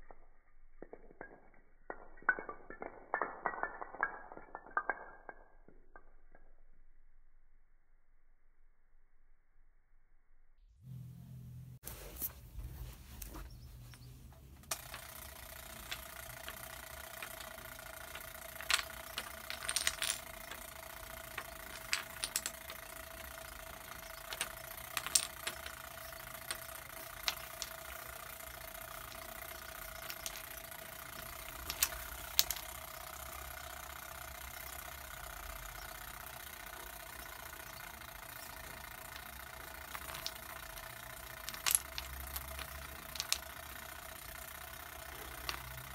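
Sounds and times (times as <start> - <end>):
background hum: 0.0 - 45.9
dominoes clicking on tile: 14.6 - 45.9.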